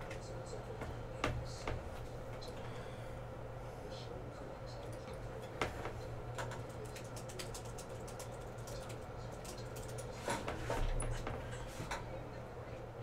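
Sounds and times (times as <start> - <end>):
steady low hum: 0.0 - 13.0
typing on computer keyboard: 6.4 - 10.2.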